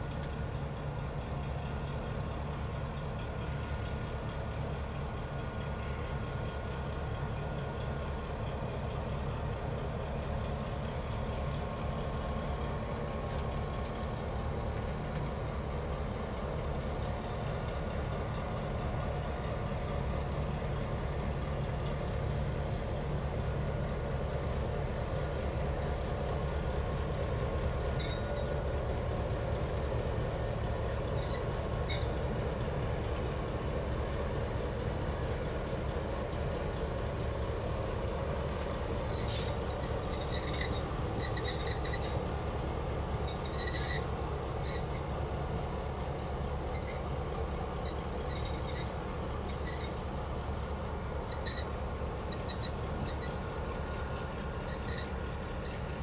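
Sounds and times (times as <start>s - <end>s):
diesel locomotive engine running: 0.0s - 56.0s
high squeals: 39.1s - 42.6s, 43.2s - 45.2s, 46.7s - 50.0s, 51.0s - 53.5s.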